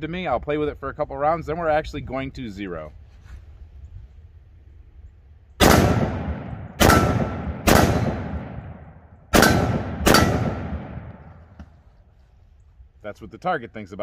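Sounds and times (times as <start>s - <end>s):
rifle shots with echo: 5.6s - 11.7s
bullets ringing steel targets: 5.7s - 8.4s, 9.3s - 10.8s.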